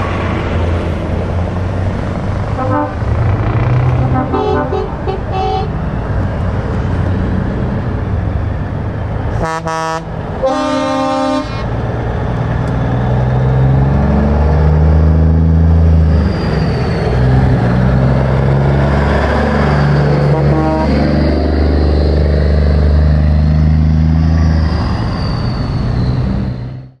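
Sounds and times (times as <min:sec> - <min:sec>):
truck diesel engine accelerating: 0:00.0 - 0:27.0
air horn blast: 0:02.5 - 0:05.8, 0:09.4 - 0:11.7, 0:20.2 - 0:21.1.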